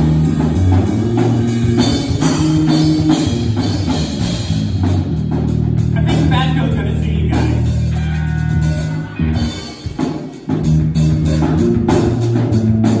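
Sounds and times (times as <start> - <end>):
drum kit playing: 0.0 - 13.0
electric guitar: 7.3 - 13.0.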